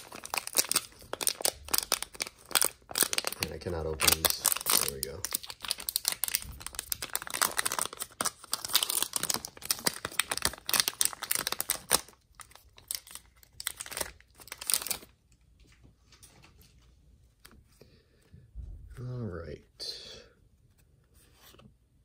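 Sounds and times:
plastic wrapper crinkling and tearing: 0:00.0 - 0:16.4
cards being handled: 0:20.6 - 0:21.8.

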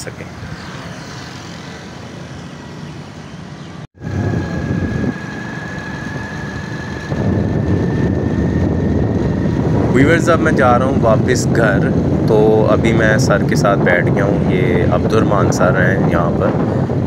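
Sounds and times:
road traffic noise: 0:00.0 - 0:17.0
gusty wind on microphone: 0:03.9 - 0:17.0.

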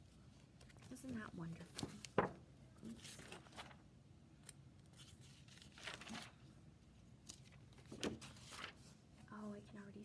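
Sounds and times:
paper rustling: 0:00.3 - 0:06.6, 0:07.2 - 0:09.2
paper page flap: 0:05.0 - 0:06.4, 0:07.3 - 0:08.9.

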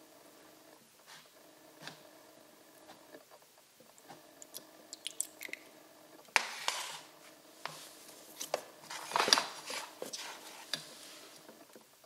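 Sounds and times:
oil dripping: 0:04.4 - 0:05.8
plastic rustle: 0:07.8 - 0:11.5.

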